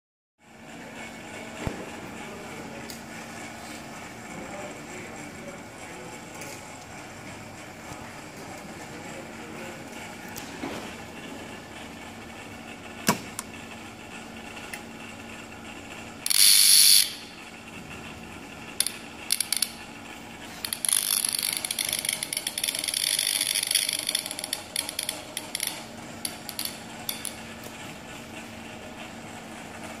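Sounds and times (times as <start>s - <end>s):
sharp electrical clicks: 16.2s - 17.4s, 18.7s - 19.9s, 20.6s - 27.7s.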